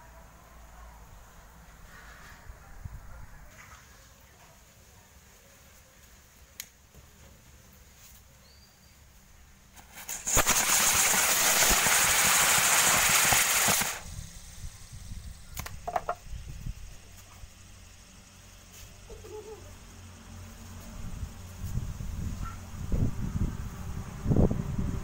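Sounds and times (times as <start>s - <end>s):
firecracker rockets hissing: 9.6s - 23.1s.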